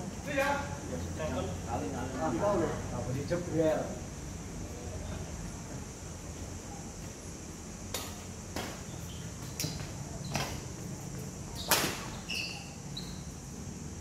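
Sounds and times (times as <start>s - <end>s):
rackets hitting shuttlecock: 11.6s - 12.2s.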